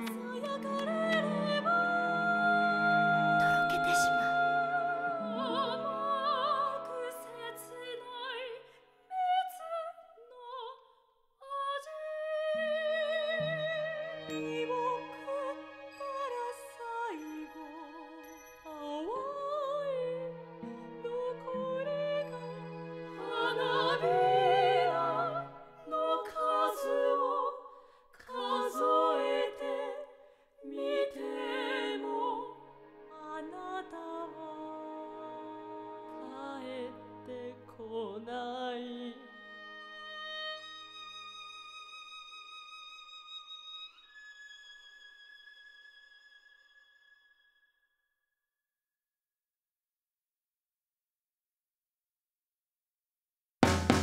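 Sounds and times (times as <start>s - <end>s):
woman singing operatically: 0.0s - 10.8s, 11.4s - 20.3s, 21.0s - 27.7s, 33.1s - 40.8s.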